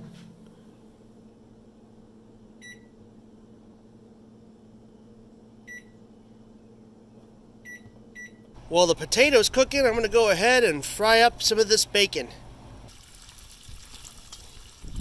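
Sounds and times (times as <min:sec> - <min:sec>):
faint steady hum: 0:00.0 - 0:13.7
microwave keypad beeps: 0:02.6 - 0:02.9, 0:05.7 - 0:06.0, 0:07.7 - 0:08.4.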